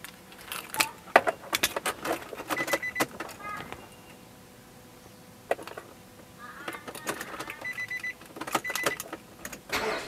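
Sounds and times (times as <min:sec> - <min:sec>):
dashboard electronic beeping: 0:02.5 - 0:03.1, 0:07.5 - 0:09.1.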